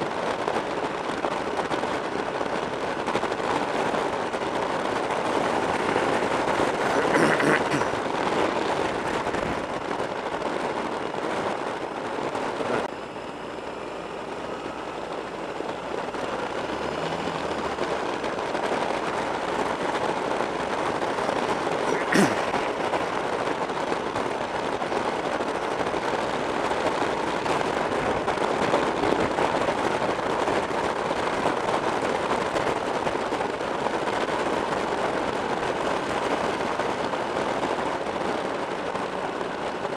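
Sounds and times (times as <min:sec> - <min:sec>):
wind buffeting microphone: 0:00.0 - 0:39.9
motorcycle engine running: 0:12.6 - 0:29.4.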